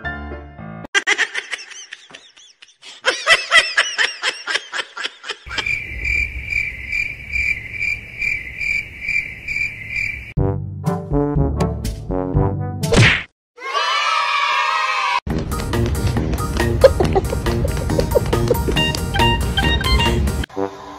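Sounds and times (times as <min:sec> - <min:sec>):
person giggling: 0:01.0 - 0:05.7, 0:16.7 - 0:19.2
pulsing high chirping: 0:05.5 - 0:10.3.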